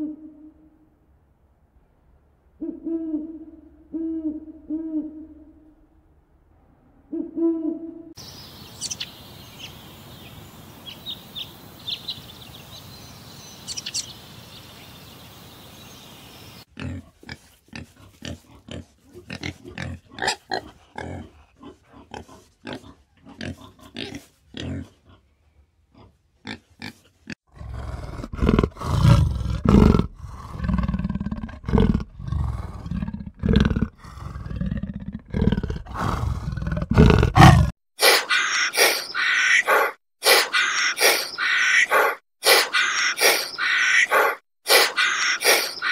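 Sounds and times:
hummingbird chirping: 0:08.2 - 0:16.7, 0:40.3 - 0:41.9, 0:42.5 - 0:45.9
steady hiss: 0:08.2 - 0:16.7
warthog grunting: 0:16.8 - 0:25.0, 0:27.5 - 0:39.0
leopard growling and roaring: 0:27.5 - 0:37.8.

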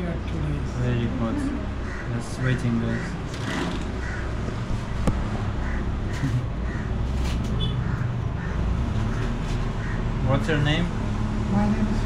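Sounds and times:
crows cawing: 0:01.8 - 0:04.7, 0:05.5 - 0:10.3.

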